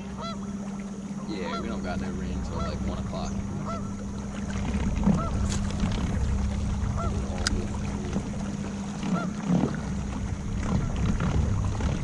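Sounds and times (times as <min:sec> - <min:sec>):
boat motor humming: 0:00.0 - 0:12.0
geese honking: 0:00.2 - 0:00.5, 0:01.4 - 0:04.0, 0:05.0 - 0:05.5, 0:06.9 - 0:07.3, 0:09.1 - 0:09.3.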